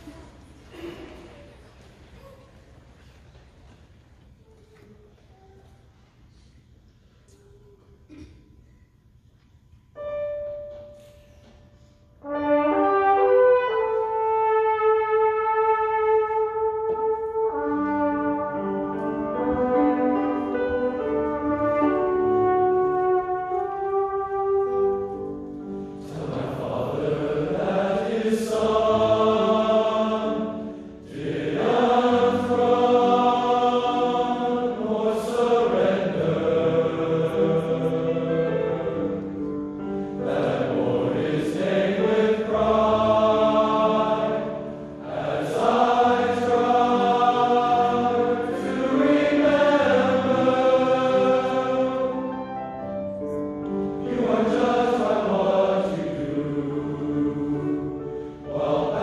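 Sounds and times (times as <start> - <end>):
men's chorus singing: 26.0 - 39.3, 40.2 - 52.4, 54.0 - 59.0.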